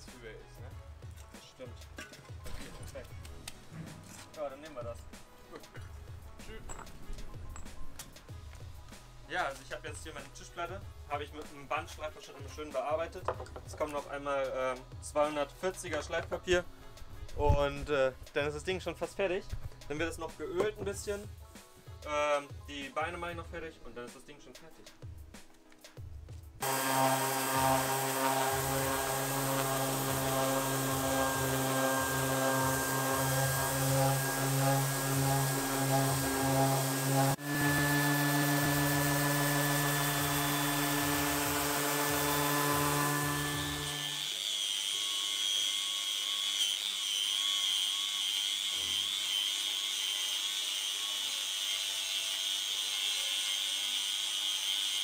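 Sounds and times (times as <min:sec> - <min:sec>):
angle grinder grinding steel: 0:26.6 - 0:55.0
orbital sander on wood: 0:26.6 - 0:55.0.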